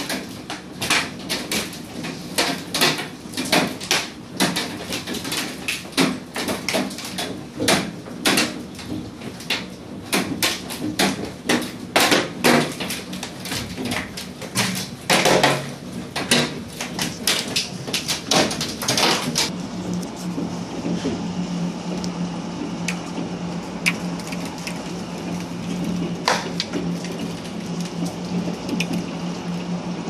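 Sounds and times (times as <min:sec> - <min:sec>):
steady low hum: 0:15.7 - 0:30.0.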